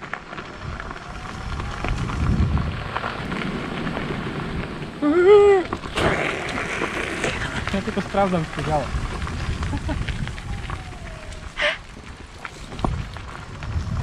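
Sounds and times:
wheels crunching on gravel: 0.0 - 14.0
person calling out: 10.3 - 11.8.

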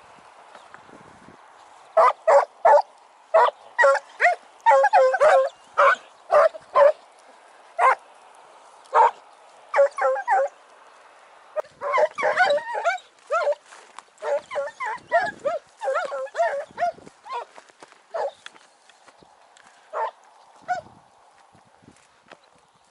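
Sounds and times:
hounds barking and yelping: 2.0 - 7.0, 7.8 - 8.0, 8.9 - 10.6, 11.6 - 18.6, 19.9 - 20.9.

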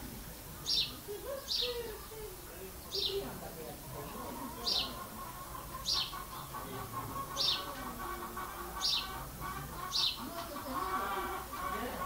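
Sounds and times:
small bird chirping: 0.6 - 2.2, 2.8 - 3.3, 8.8 - 9.1, 9.8 - 11.0.

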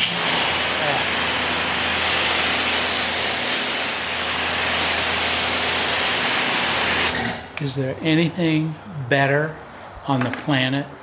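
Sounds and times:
pressure washer water jet hissing: 0.0 - 7.8.

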